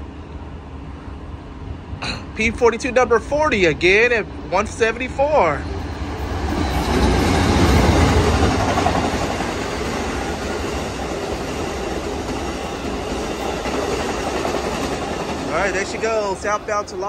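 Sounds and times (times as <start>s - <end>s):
diesel locomotives passing: 0.0s - 17.0s
wheel-on-rail noise: 5.5s - 17.0s.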